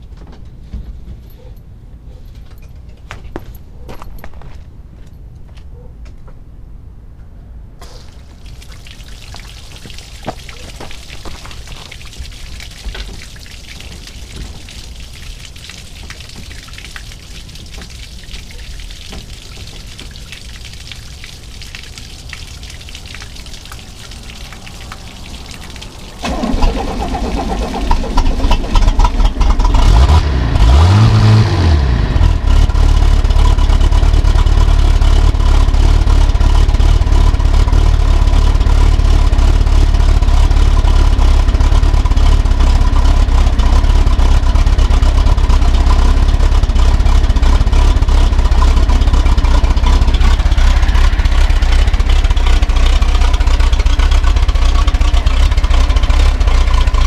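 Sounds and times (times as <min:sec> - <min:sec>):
water hissing from garden hose: 0:07.8 - 0:29.6, 0:45.8 - 0:57.0
outboard motor starting and running: 0:23.2 - 0:57.0.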